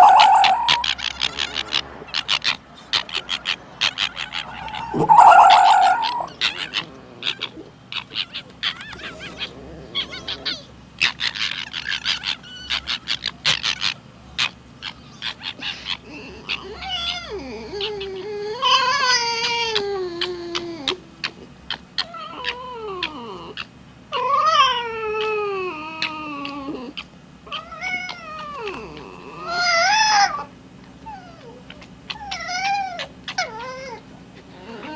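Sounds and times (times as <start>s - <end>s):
fox harsh call: 0.0s - 17.4s
fox chattering calls: 0.0s - 34.9s
fox high whining calls: 0.0s - 34.9s.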